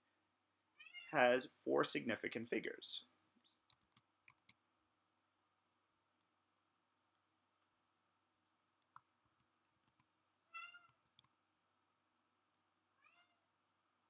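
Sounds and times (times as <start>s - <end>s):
soft clicks: 8.8s - 11.4s
faint animal calls: 13.0s - 13.4s.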